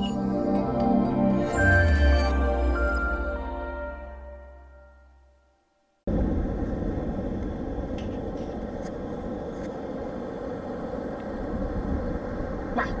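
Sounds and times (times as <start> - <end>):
wind buffeting a microphone: 11.3 - 13.0.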